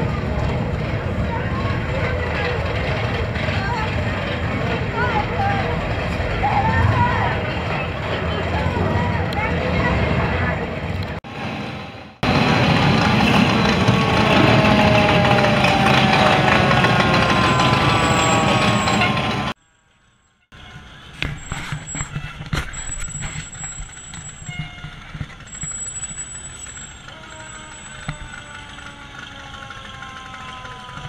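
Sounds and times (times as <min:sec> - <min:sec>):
engine rumble: 0:00.0 - 0:20.0, 0:20.6 - 0:31.0
fire engine siren winding down: 0:11.3 - 0:19.6, 0:26.5 - 0:31.0.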